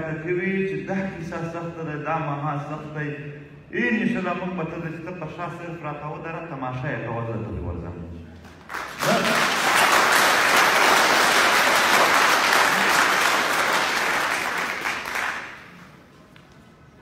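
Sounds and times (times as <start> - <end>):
audience applauding: 8.5 - 16.1.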